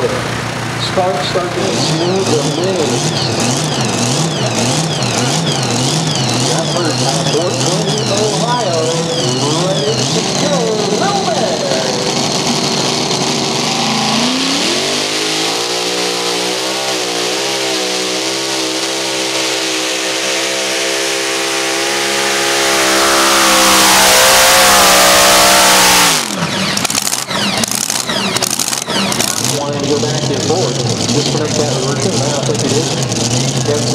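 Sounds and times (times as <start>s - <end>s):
tractor engine revving: 0.0s - 33.9s
scattered crackles: 26.3s - 29.6s.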